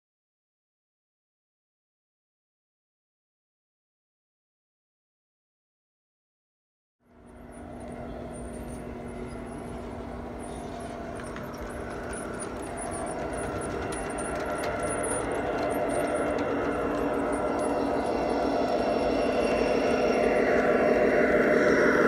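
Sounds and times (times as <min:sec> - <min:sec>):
diesel locomotive engine drone: 0:07.0 - 0:22.0.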